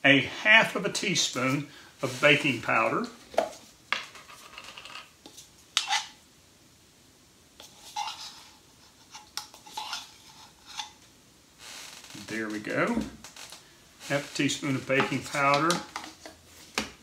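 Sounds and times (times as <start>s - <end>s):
spoon scraping in a can: 4.1s - 6.2s, 7.6s - 11.0s.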